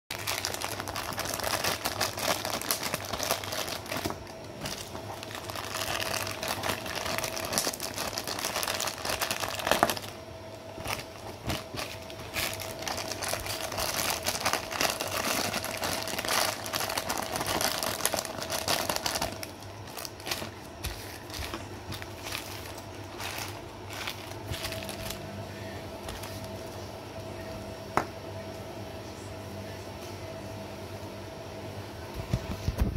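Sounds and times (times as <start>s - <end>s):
plastic bags crinkling: 0.1s - 10.2s, 10.8s - 25.2s
faint steady hum: 0.1s - 32.9s.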